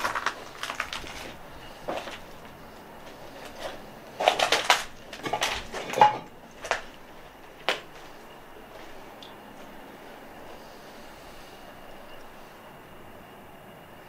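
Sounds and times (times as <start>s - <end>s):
footsteps crunching over rubble: 0.0s - 10.6s.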